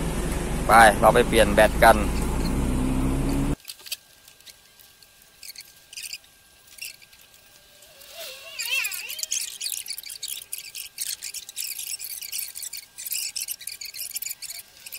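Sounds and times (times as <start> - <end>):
engine hum: 0.0 - 3.6
high wavering squeak: 5.4 - 14.9.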